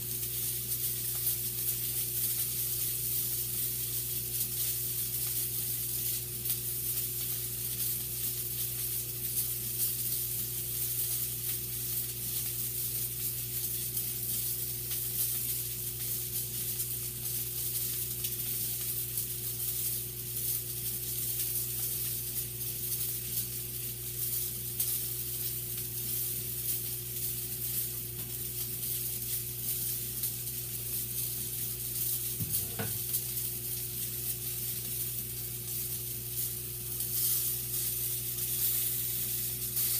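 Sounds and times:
sausage sizzling in a frying pan: 0.0s - 39.9s
steady low hum: 31.9s - 33.8s.

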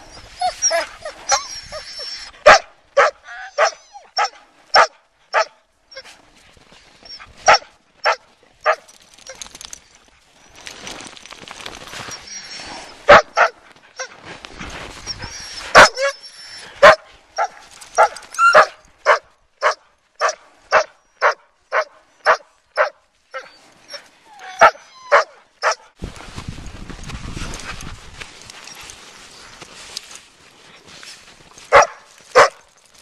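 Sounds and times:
dog shrieking and barking: 0.1s - 6.0s, 12.1s - 14.2s, 15.1s - 25.8s
rustling noise: 6.0s - 19.2s, 25.6s - 33.0s.

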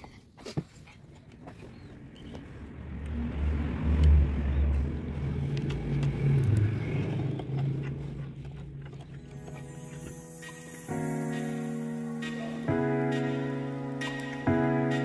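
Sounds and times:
vehicle engine rumbling past: 1.9s - 10.2s.

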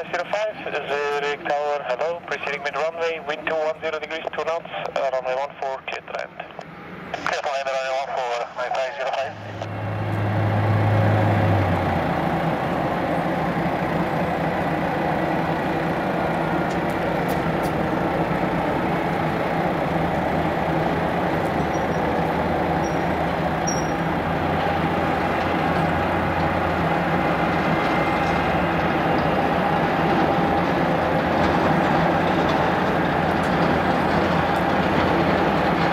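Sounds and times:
distant jet engine rush: 0.0s - 35.9s.

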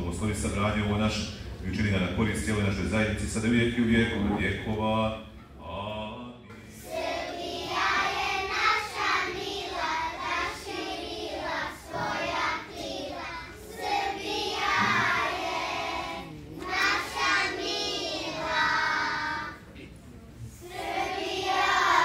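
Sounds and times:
children singing in chorus: 6.6s - 19.9s, 20.6s - 22.0s.

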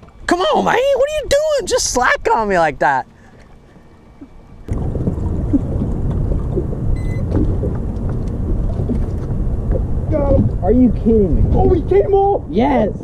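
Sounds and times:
wind and water rumble: 0.0s - 13.0s
short high electronic beep: 7.0s - 7.2s.

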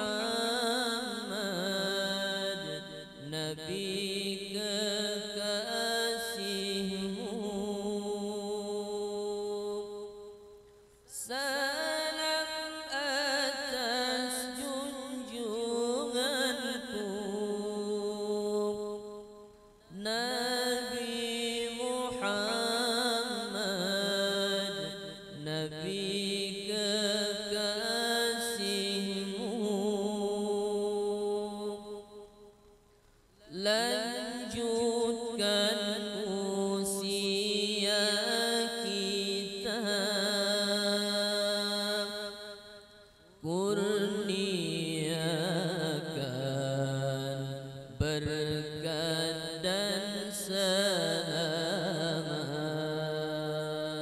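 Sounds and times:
man singing unaccompanied: 0.0s - 32.7s, 33.4s - 54.0s
breath: 10.7s - 11.1s, 42.9s - 43.4s.

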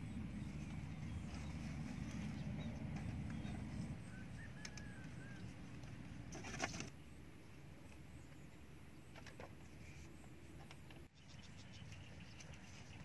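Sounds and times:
bird chirp: 0.0s - 6.0s, 8.1s - 13.0s
bamboo poles rustling and knocking: 4.6s - 7.0s.

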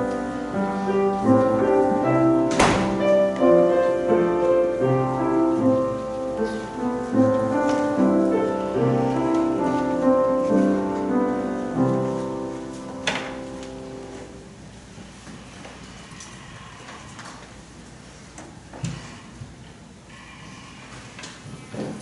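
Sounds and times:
piano playing slow chords: 0.0s - 14.9s.

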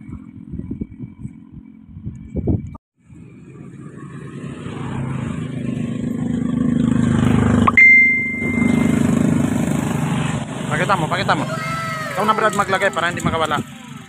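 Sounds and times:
motor engine running: 0.0s - 14.0s
high-pitched tone: 7.6s - 9.3s.

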